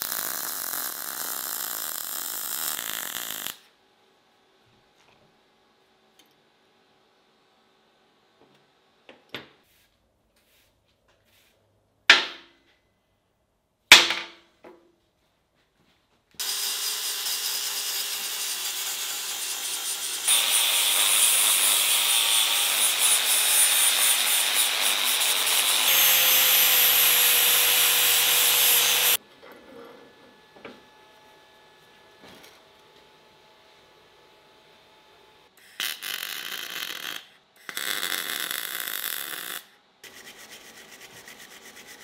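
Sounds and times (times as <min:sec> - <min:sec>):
angle grinder grinding steel: 0:16.4 - 0:29.2.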